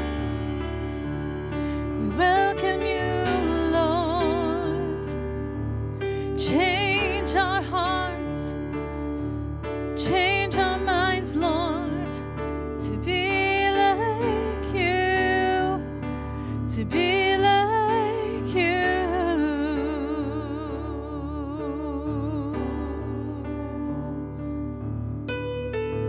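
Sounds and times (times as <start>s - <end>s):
woman singing with vibrato: 2.0s - 5.2s, 6.3s - 8.5s, 10.0s - 12.2s, 12.8s - 15.9s, 16.7s - 24.3s.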